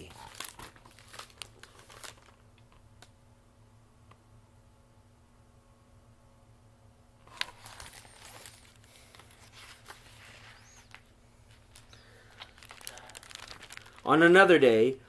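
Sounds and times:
paper pages rustling: 0.0s - 2.4s, 7.2s - 14.1s.

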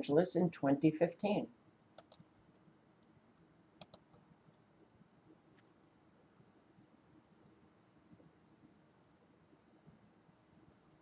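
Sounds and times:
soft high-pitched ticks: 2.0s - 4.7s, 6.8s - 10.2s.

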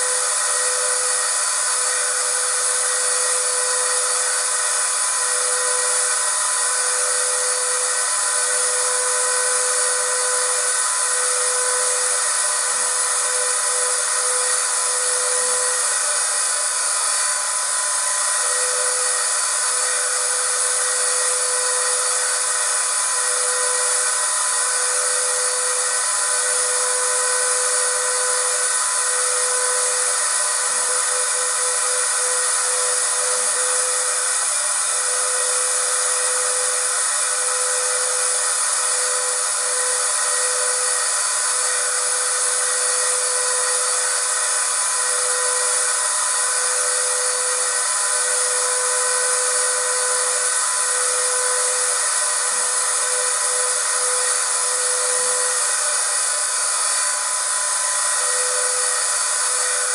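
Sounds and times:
vacuum cleaner running: 0.0s - 59.9s.

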